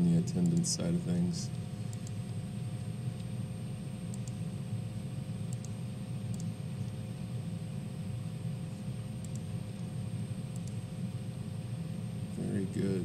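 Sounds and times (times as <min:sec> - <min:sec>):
low room hum: 0:00.0 - 0:13.0
computer mouse clicks: 0:00.4 - 0:00.7, 0:01.9 - 0:02.2, 0:04.1 - 0:04.4, 0:05.5 - 0:07.0, 0:09.2 - 0:09.5, 0:10.5 - 0:10.8.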